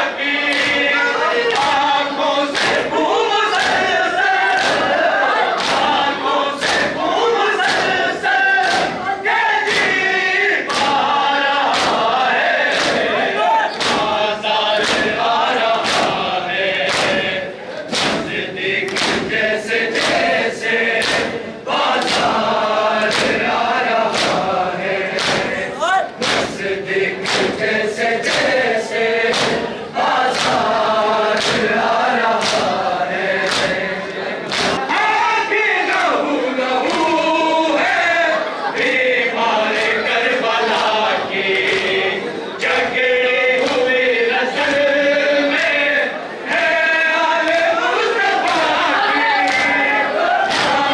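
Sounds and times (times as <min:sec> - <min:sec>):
men chanting together: 0:00.0 - 0:50.9
hand slaps on chests: 0:00.4 - 0:00.9, 0:01.5 - 0:01.9, 0:02.5 - 0:24.5, 0:25.1 - 0:27.6, 0:28.2 - 0:32.8, 0:33.4 - 0:34.9, 0:36.8 - 0:38.0, 0:39.7 - 0:44.0, 0:48.4 - 0:50.9
hands thumping chests: 0:11.7 - 0:15.2, 0:15.8 - 0:20.3, 0:24.1 - 0:24.5, 0:25.1 - 0:25.6, 0:26.2 - 0:26.6, 0:29.2 - 0:29.7.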